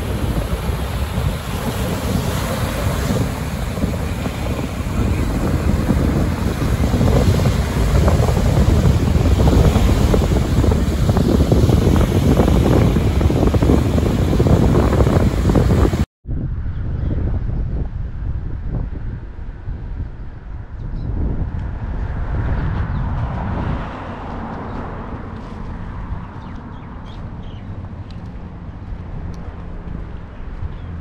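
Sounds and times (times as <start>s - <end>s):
waves breaking on shore: 0.0s - 16.1s
wind buffeting microphone: 0.0s - 31.0s.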